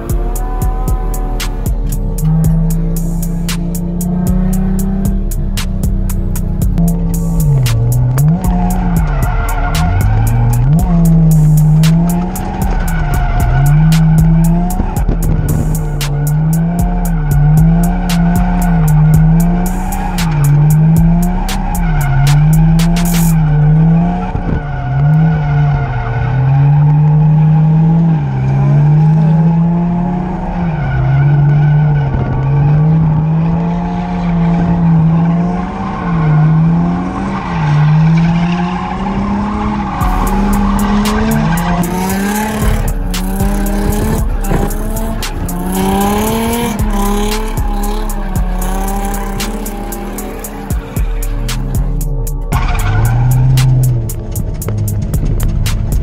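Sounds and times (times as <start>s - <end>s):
car engine revving: 0.0s - 56.0s
tyres squealing: 6.8s - 24.2s, 37.2s - 54.1s.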